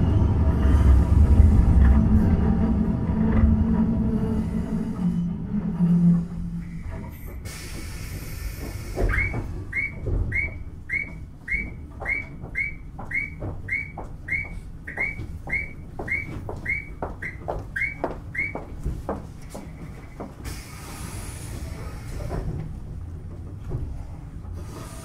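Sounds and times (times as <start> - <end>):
hiss: 7.4 - 9.5, 20.4 - 22.5, 24.6 - 25.0.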